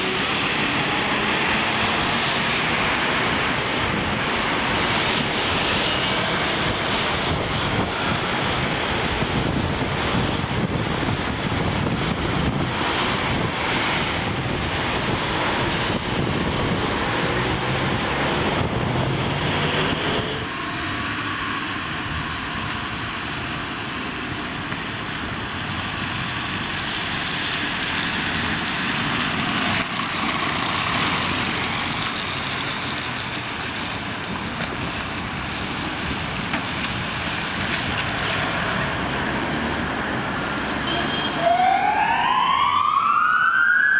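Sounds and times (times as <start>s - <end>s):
street hiss: 0.0s - 41.4s
vehicle engine: 0.0s - 42.1s
wind on microphone: 0.3s - 23.6s.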